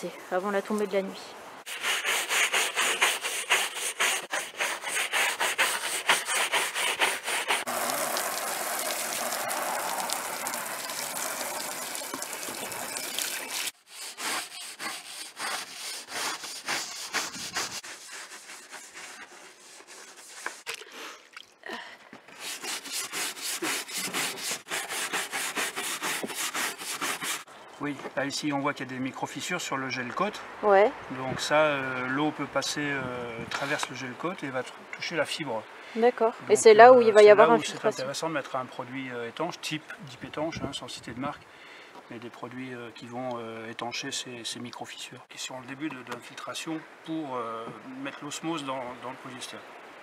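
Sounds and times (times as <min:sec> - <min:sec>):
scrub brushes scrubbing roof: 0:01.7 - 0:08.9, 0:13.4 - 0:20.8, 0:22.3 - 0:27.5.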